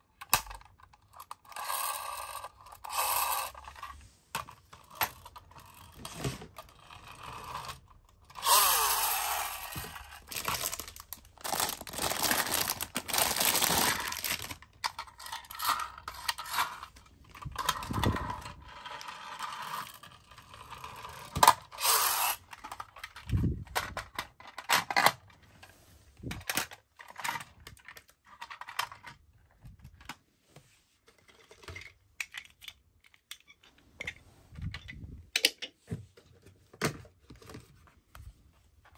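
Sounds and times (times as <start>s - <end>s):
toy cars clicking and knocking: 0.0s - 25.2s, 26.3s - 30.2s, 31.0s - 35.8s
toy cars rolling on wooden floor: 0.2s - 25.7s.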